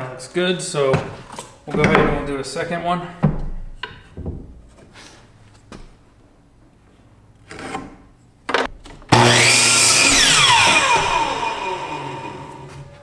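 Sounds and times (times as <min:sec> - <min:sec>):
miter saw cutting wood: 0:09.1 - 0:13.0
saw blade spinning down: 0:09.1 - 0:13.0.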